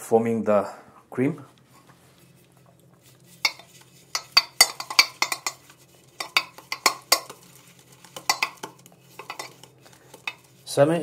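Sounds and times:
brush clinking and scraping metal bowl: 0:01.7 - 0:10.9.

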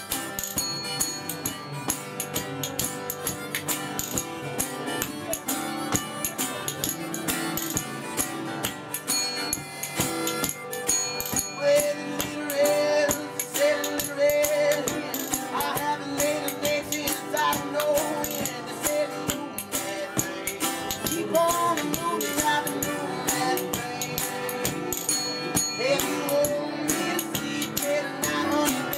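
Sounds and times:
acoustic guitars strummed and picked: 0:00.0 - 0:28.9
spoons clicking a rhythm: 0:00.0 - 0:28.9
man singing: 0:11.2 - 0:28.9.

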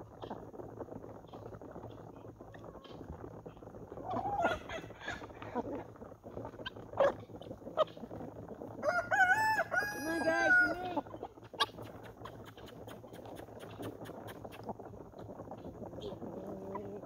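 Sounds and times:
rooster crowing: 0:08.8 - 0:11.0.

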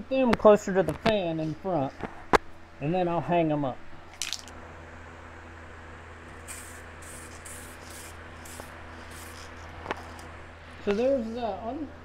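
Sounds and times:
steady low hum: 0:00.0 - 0:12.0
aerosol spray can hissing bursts: 0:06.4 - 0:10.2.

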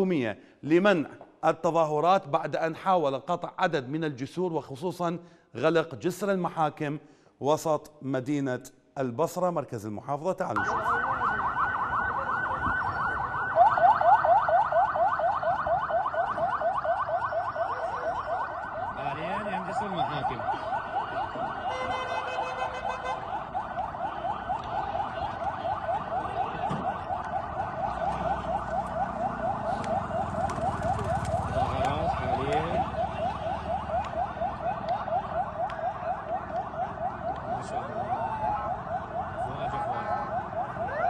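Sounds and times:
police siren yelping: 0:10.6 - 0:41.0.

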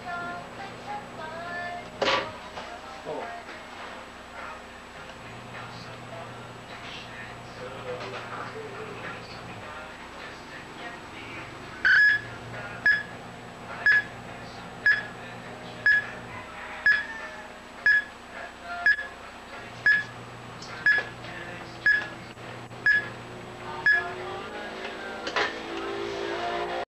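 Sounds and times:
short electronic beeps: 0:11.8 - 0:13.1, 0:13.8 - 0:14.1, 0:14.8 - 0:15.1, 0:15.8 - 0:16.1, 0:16.9 - 0:17.1, 0:17.9 - 0:18.1, 0:18.8 - 0:19.0, 0:19.8 - 0:20.1, 0:20.8 - 0:21.1, 0:21.8 - 0:22.1, 0:22.8 - 0:23.1, 0:23.8 - 0:24.1.

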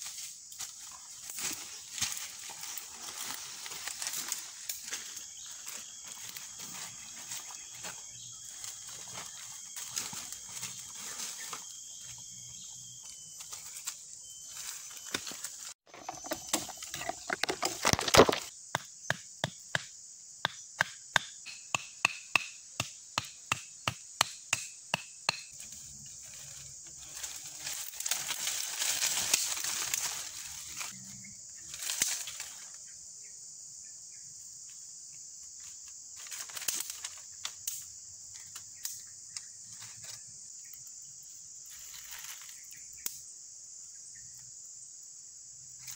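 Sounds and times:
cicadas droning: 0:00.0 - 0:45.9
machete chopping wood: 0:17.6 - 0:25.5.

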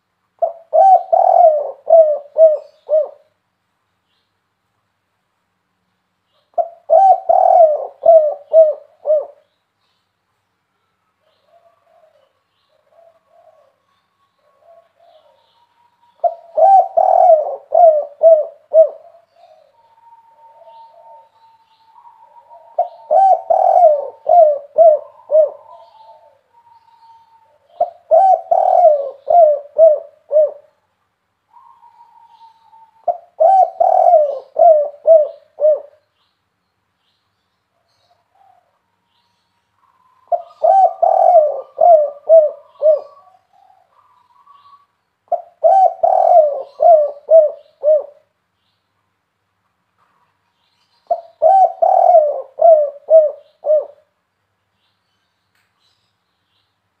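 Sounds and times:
dove cooing: 0:00.4 - 0:03.3, 0:06.5 - 0:09.4, 0:11.2 - 0:30.8, 0:31.5 - 0:36.0, 0:39.8 - 0:48.3, 0:51.0 - 0:54.1.

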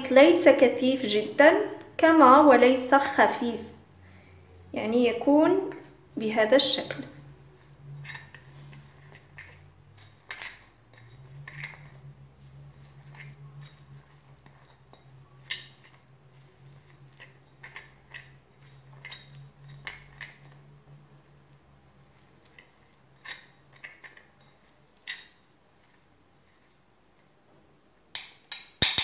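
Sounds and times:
spoon scraping ceramic bowl: 0:04.5 - 0:27.4.

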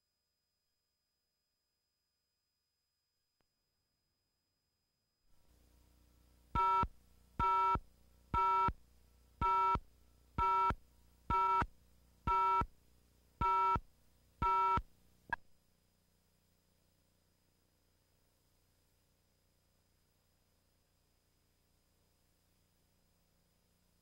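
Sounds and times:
faint videotape hum and hiss: 0:05.3 - 0:24.0.

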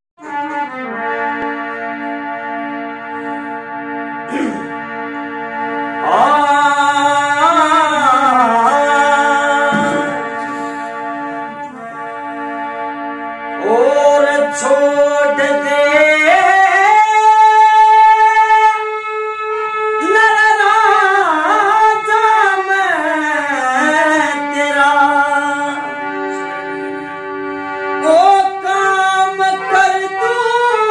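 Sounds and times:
harmonium chords: 0:00.2 - 0:30.9
man singing: 0:04.3 - 0:04.8, 0:06.0 - 0:10.8, 0:13.6 - 0:19.1, 0:19.9 - 0:26.6, 0:28.0 - 0:30.9.

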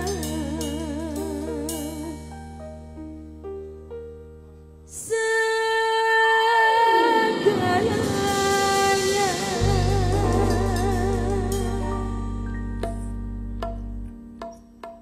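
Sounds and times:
woman singing with vibrato: 0:00.0 - 0:02.3, 0:05.0 - 0:12.1
keyboard notes: 0:06.8 - 0:15.0
live band playing: 0:07.2 - 0:13.8
deep bass: 0:07.8 - 0:14.7.

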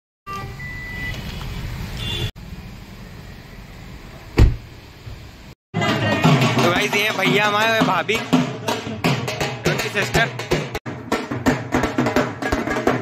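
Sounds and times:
heavy thump: 0:04.4 - 0:04.7.

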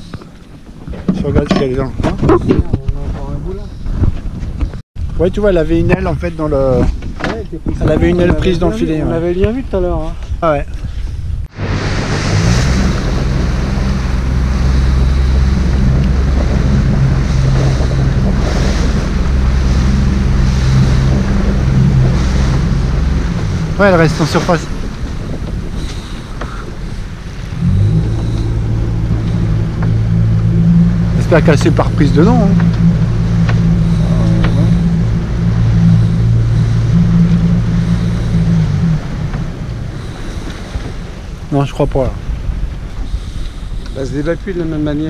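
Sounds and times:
water washing along hull: 0:00.0 - 0:10.6, 0:11.4 - 0:45.0
wind on microphone: 0:00.0 - 0:45.0
boat engine humming: 0:11.4 - 0:45.0.

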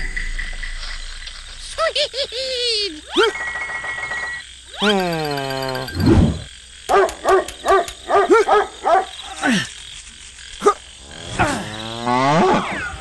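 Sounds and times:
cartoon falling swoops: 0:04.7 - 0:06.5.

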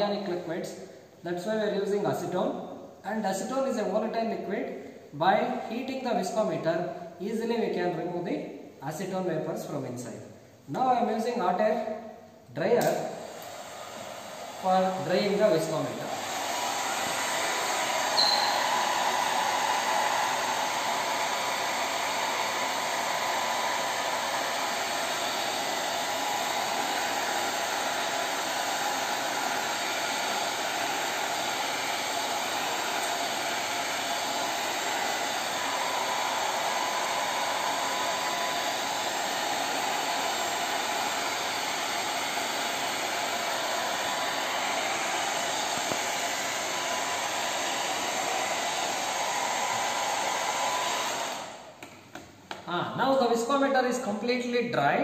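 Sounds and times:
hot air dryer blowing: 0:12.8 - 0:52.0.

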